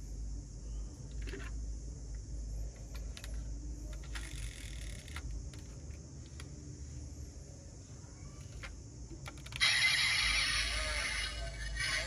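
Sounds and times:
toy car clicking and rattling: 2.9 - 6.5, 8.4 - 12.0.

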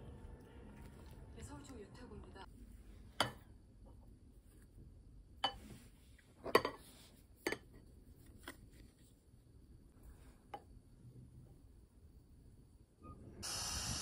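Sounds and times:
tableware clinking and knocking: 6.4 - 6.9.

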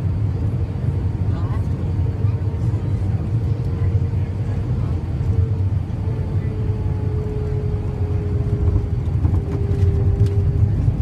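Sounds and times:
airliner cabin rumble: 0.0 - 11.0
faint engine tone: 0.0 - 11.0.

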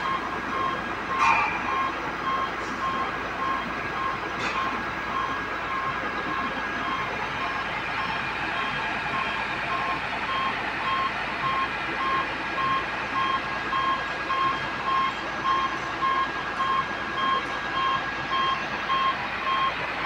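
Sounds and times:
crane warning beeper: 0.0 - 20.0
diesel engine and hydraulics: 0.0 - 20.0.

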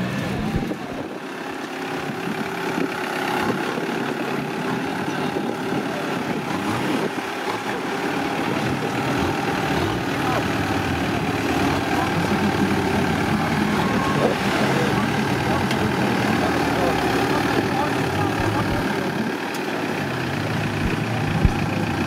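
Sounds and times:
off-road vehicle engine running: 0.0 - 22.0.

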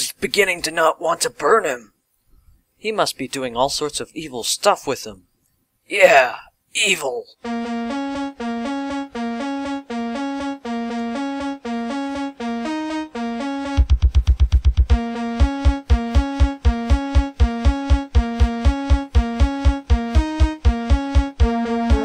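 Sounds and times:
synthesized keyboard music: 7.3 - 22.0
low beats: 7.4 - 22.0.

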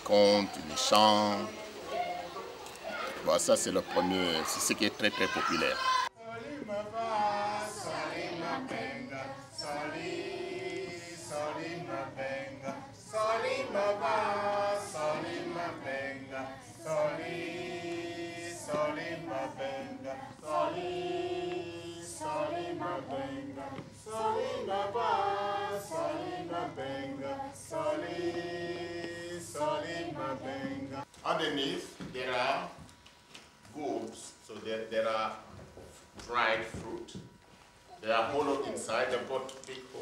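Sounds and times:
children singing a chant: 0.0 - 31.0.

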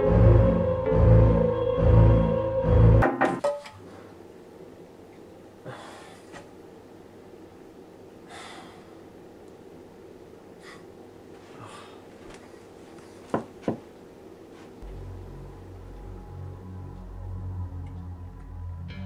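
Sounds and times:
low droning horror music: 0.0 - 3.0, 14.8 - 19.0
soft breaths: 8.2 - 9.2, 10.5 - 13.3.

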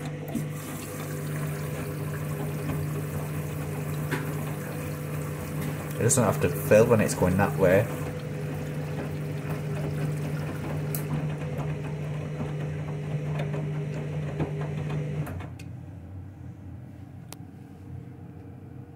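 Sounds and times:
washing machine motor hum: 0.0 - 18.9
water sloshing in drum: 0.3 - 12.6.

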